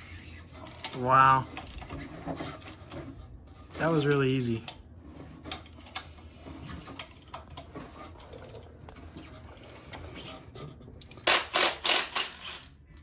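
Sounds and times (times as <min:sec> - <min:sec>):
metallic clicks and rubbing: 0:00.2 - 0:12.8
impact wrench rattling: 0:11.1 - 0:12.8.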